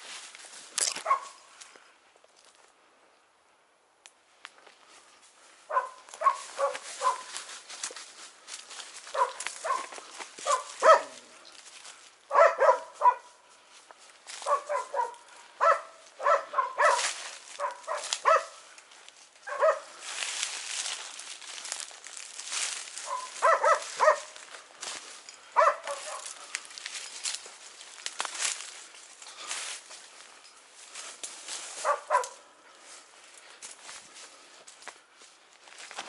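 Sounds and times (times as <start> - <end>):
footsteps through dry leaves: 0.0 - 1.8, 4.7 - 36.0
dogs barking: 1.0 - 1.4, 5.7 - 7.5, 9.0 - 11.4, 12.3 - 13.4, 14.3 - 18.7, 19.4 - 20.1, 22.6 - 26.7, 31.7 - 32.5.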